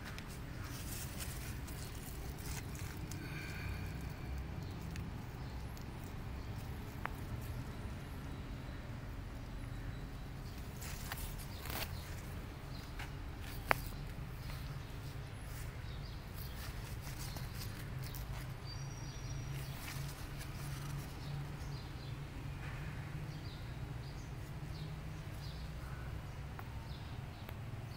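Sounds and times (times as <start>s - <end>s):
leaves rustling and crackling: 0.0s - 8.0s, 10.4s - 21.7s
bird chirp: 0.5s - 27.9s.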